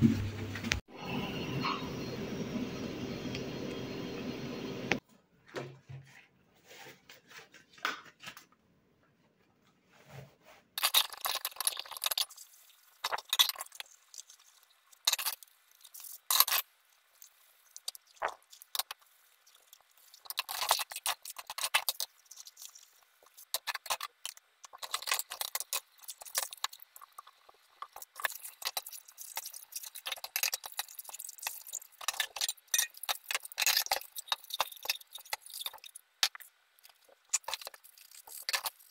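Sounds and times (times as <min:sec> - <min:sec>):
small objects clicking and rustling: 0:10.8 - 0:38.9.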